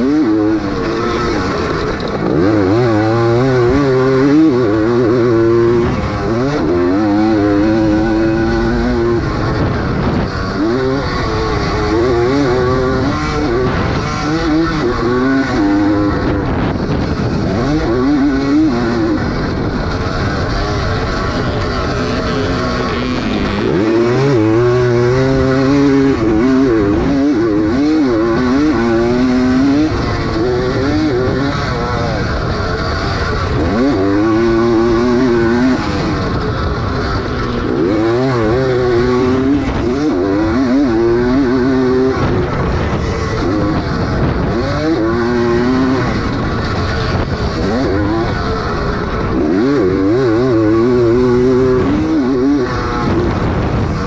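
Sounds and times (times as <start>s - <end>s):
motocross bike engine revving: 0.0s - 54.0s
wind noise: 0.0s - 54.0s.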